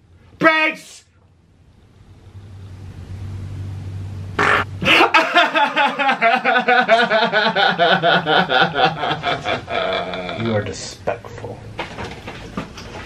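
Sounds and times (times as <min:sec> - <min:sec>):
man laughing loudly: 0:04.4 - 0:10.5.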